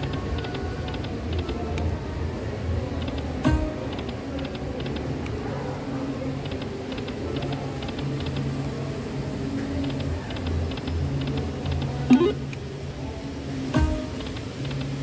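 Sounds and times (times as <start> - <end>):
electronic game tones: 12.1 - 12.4
slot machine quick ticks: 12.1 - 12.4.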